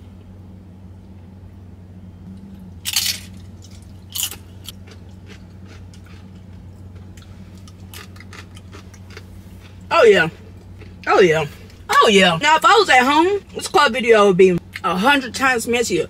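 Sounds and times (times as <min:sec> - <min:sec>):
chewing crunches: 0:02.3 - 0:11.9
chip crunching: 0:02.4 - 0:11.8.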